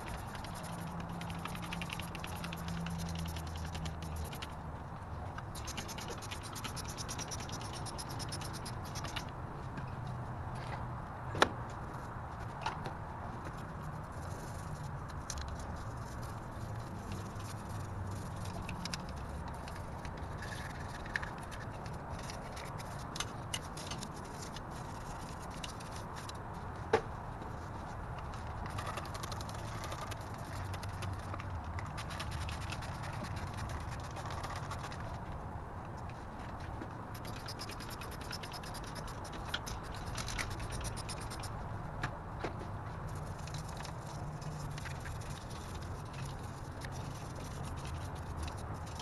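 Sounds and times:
brush scrubbing engine: 0.0 - 4.6.

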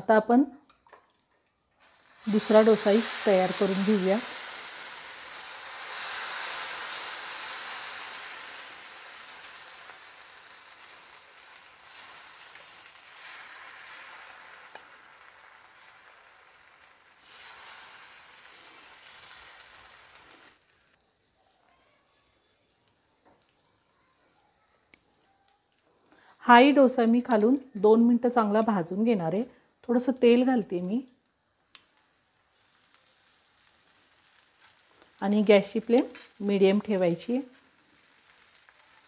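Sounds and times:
batter sizzling on a hot pan: 1.6 - 24.0, 30.8 - 39.0.

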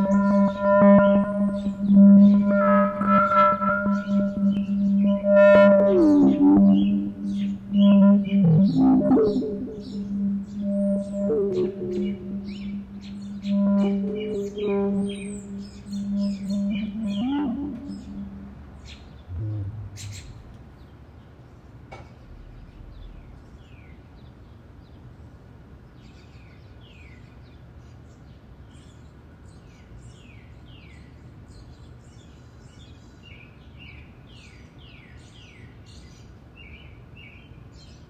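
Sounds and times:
small birds chirping: 0.0 - 20.9
low background rumble: 14.8 - 20.9, 22.1 - 24.1.

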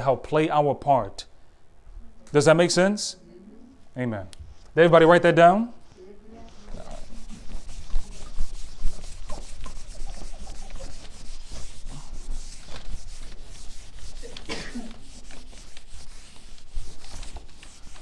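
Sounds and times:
eraser wiping whiteboard: 6.4 - 18.0.

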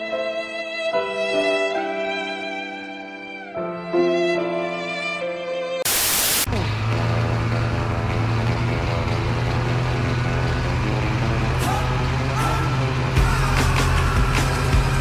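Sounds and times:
tv static: 5.8 - 6.5
snowmobile engine running: 6.5 - 15.0.

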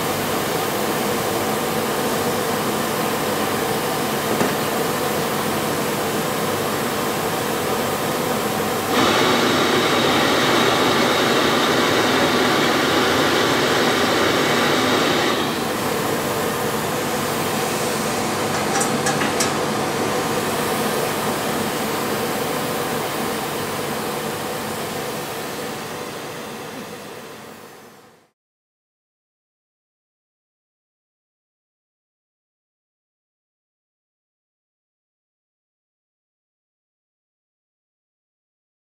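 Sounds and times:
gas torch flame rushing: 8.9 - 19.7.

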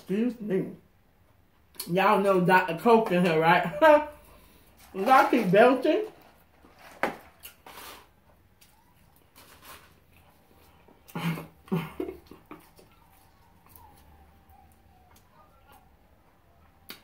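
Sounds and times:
chewing fries: 4.3 - 17.0.

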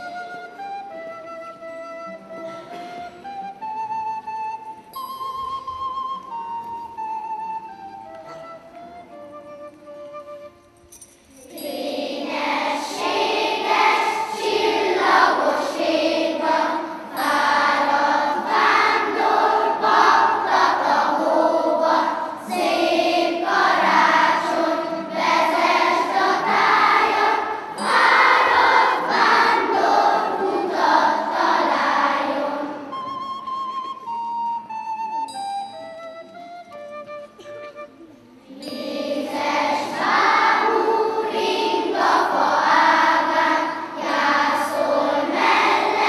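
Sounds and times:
children's choir singing: 0.0 - 1.0, 11.4 - 33.5, 38.4 - 46.0
soft instrumental notes: 0.0 - 46.0.

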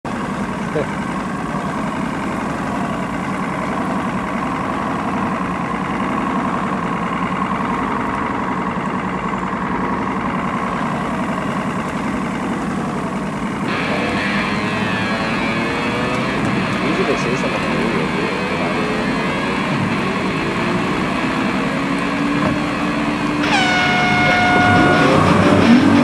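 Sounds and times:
boat engines idling: 0.1 - 26.0
bright rising and falling tones: 13.7 - 21.9, 23.4 - 26.0.

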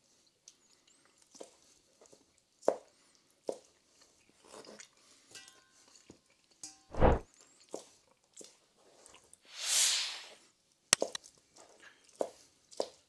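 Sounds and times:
short soft hiss: 6.9 - 7.2, 9.5 - 10.4.

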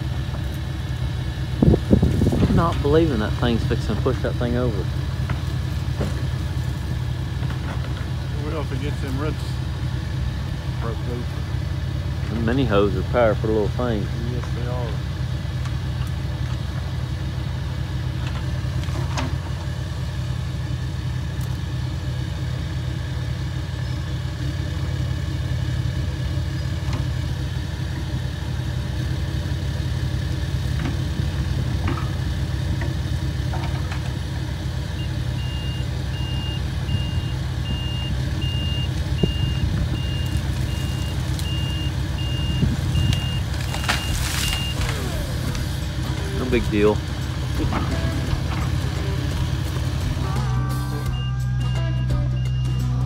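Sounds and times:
excavator engine running: 0.0 - 53.0
reversing alarm beeping: 35.0 - 44.9, 50.6 - 53.0.

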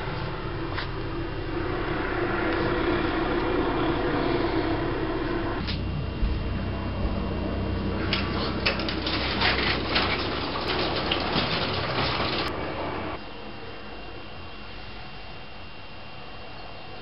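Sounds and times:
low hum: 0.0 - 17.0
roller shutter slats rattling: 8.0 - 12.5.

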